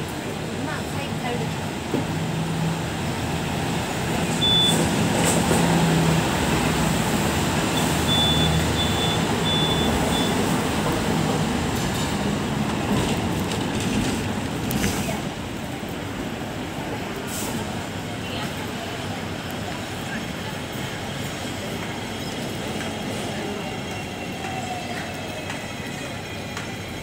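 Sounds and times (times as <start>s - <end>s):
tram wheels rumbling on rails: 0.0s - 27.0s
short high beeps: 4.4s - 4.8s, 7.8s - 10.4s.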